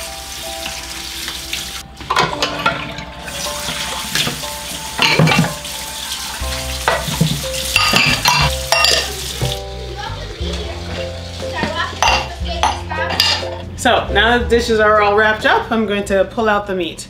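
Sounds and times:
running water: 0.0s - 13.4s
background music: 0.0s - 17.0s
dishes and pots clinking: 2.0s - 5.7s, 6.7s - 9.6s, 10.5s - 13.7s.

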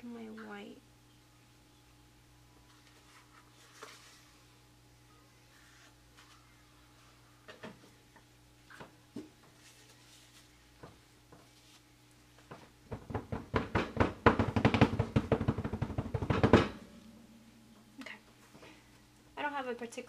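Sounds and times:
soap mold knocking on countertop: 12.5s - 16.8s.

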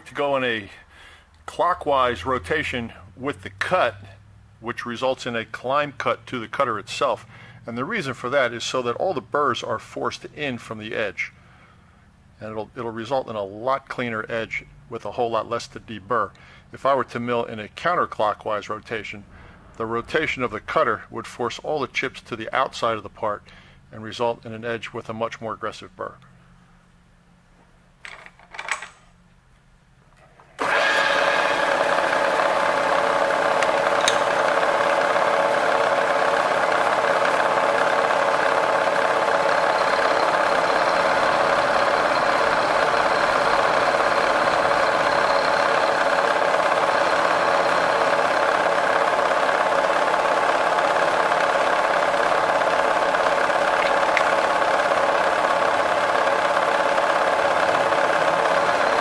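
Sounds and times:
milling machine cutting metal: 30.6s - 59.0s.

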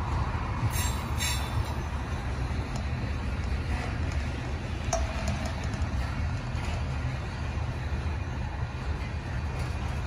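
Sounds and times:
freight train rolling on rails: 0.0s - 10.0s
metallic clank with ringing: 4.8s - 7.0s.

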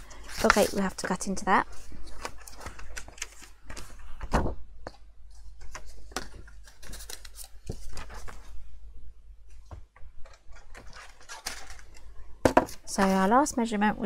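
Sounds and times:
paper rustling and tapping: 0.1s - 1.4s, 2.0s - 8.5s.

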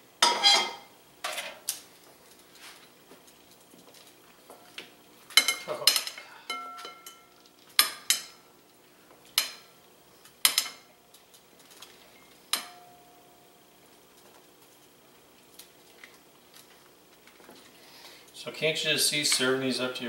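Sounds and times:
metal tongs clinking on ceramic bowl: 5.4s - 8.3s.

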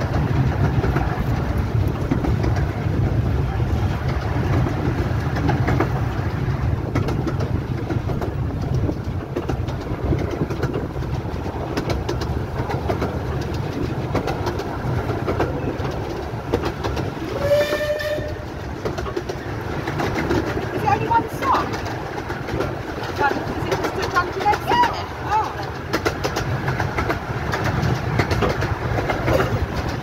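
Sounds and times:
miniature steam train running: 0.0s - 30.0s
wheels clicking over rail joints: 0.0s - 30.0s
steam train whistle: 17.2s - 18.5s.

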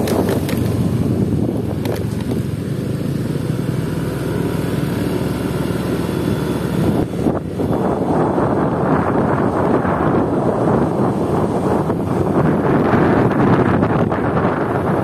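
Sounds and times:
wind on microphone: 0.0s - 2.6s, 5.9s - 15.0s
motorcycle engine running: 0.0s - 15.0s.

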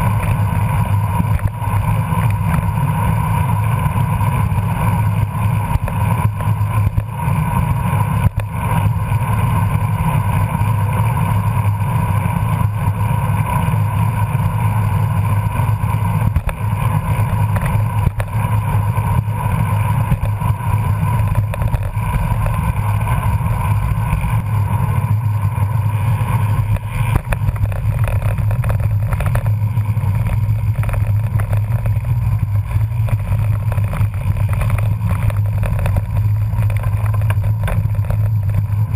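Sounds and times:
wind and road rumble: 0.0s - 38.9s.

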